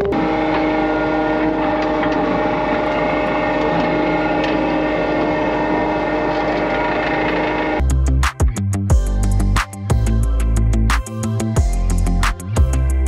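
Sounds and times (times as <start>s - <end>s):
skid steer engine running: 0.0s - 8.2s.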